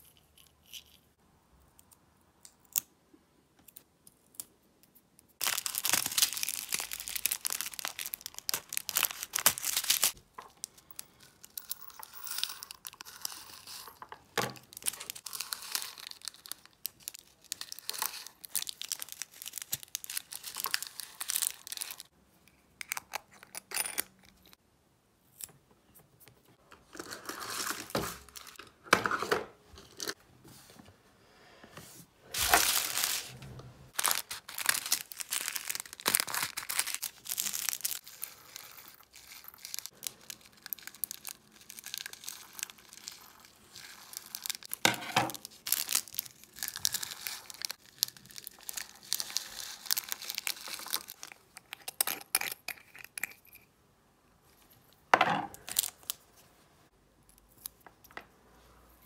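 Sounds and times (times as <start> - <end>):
plastic bags crinkling: 5.4 - 11.6, 14.3 - 22.1, 32.4 - 51.4
beads poured into glass jar: 11.2 - 14.0.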